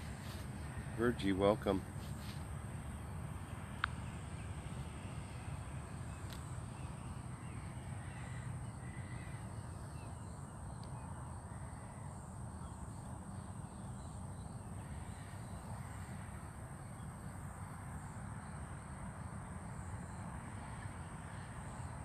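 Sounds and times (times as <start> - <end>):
crows cawing: 8.0 - 9.6.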